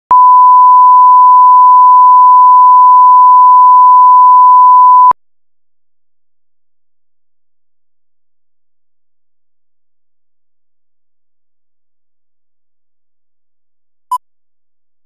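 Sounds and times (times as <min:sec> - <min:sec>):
steady pure test tone beep: 0:00.1 - 0:05.2.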